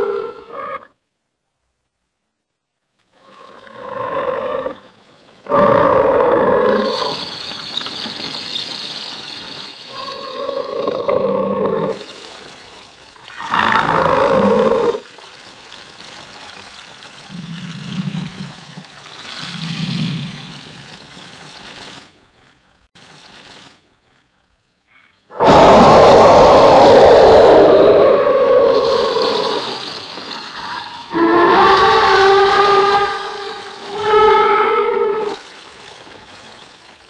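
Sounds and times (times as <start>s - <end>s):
alligator roaring: 3.2s - 7.2s, 10.0s - 12.1s, 13.3s - 15.0s, 25.3s - 35.4s.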